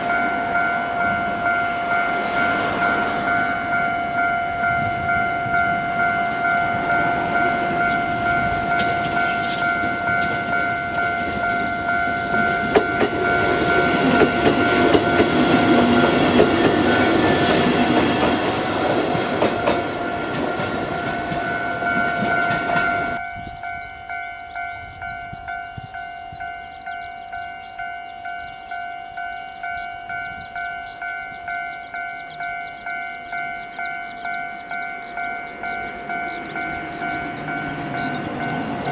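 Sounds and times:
level crossing alarm ringing: 0:00.0 - 0:38.9
train wheels clattering: 0:04.9 - 0:23.2.

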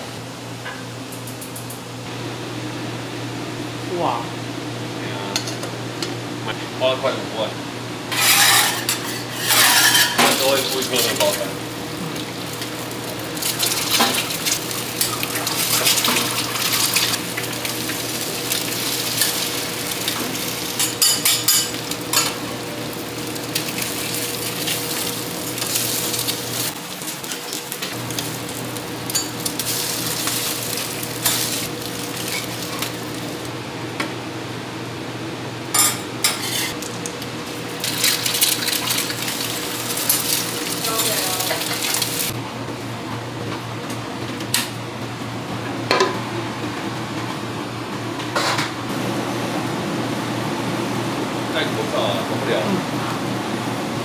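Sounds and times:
metal utensils clattering on pans: 0:08.1 - 0:11.5, 0:13.4 - 0:17.2, 0:20.1 - 0:22.4, 0:29.1 - 0:33.0, 0:35.8 - 0:36.8, 0:37.8 - 0:42.3
eggs sizzling on griddle: 0:08.1 - 0:33.5, 0:37.5 - 0:42.4.

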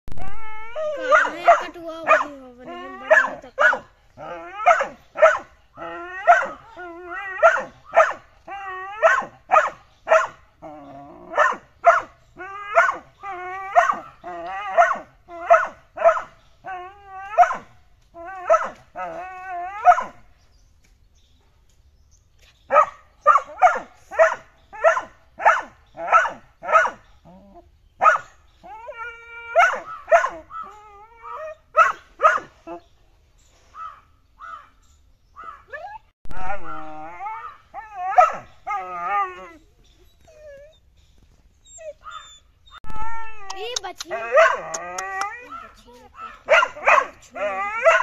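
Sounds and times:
puppy barking: 0:01.0 - 0:03.9, 0:04.6 - 0:05.5, 0:07.4 - 0:08.2, 0:09.0 - 0:10.4, 0:11.4 - 0:12.1, 0:14.8 - 0:16.3, 0:18.4 - 0:18.8, 0:19.8 - 0:20.2, 0:22.7 - 0:27.0, 0:28.0 - 0:28.3, 0:29.5 - 0:30.7, 0:31.7 - 0:32.6, 0:35.4 - 0:38.5, 0:43.6 - 0:48.0
puppy whining: 0:35.7 - 0:46.4.

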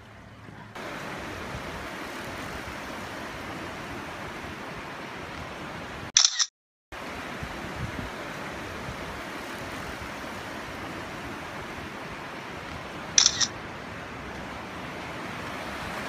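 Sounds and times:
street traffic noise: 0:00.0 - 0:16.0
camera shutter click: 0:06.2 - 0:06.5, 0:13.2 - 0:13.5.

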